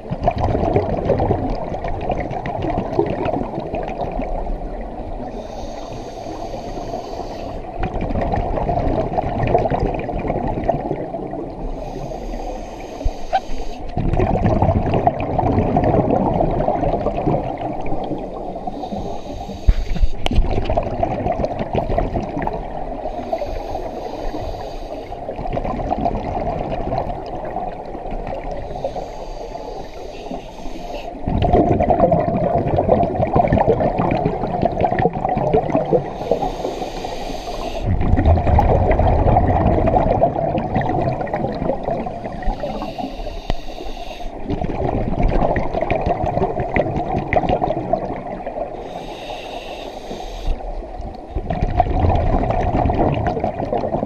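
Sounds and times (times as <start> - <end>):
exhaled bubbles gushing: 0.0 - 5.4, 7.5 - 12.0, 13.3 - 23.5, 25.2 - 29.1, 30.4 - 43.1, 44.3 - 49.0, 50.6 - 54.0
diver inhaling through regulator: 5.3 - 7.7, 11.6 - 13.9, 18.6 - 20.4, 23.0 - 25.3, 28.6 - 31.2, 36.0 - 38.0, 42.2 - 44.5, 48.8 - 50.8.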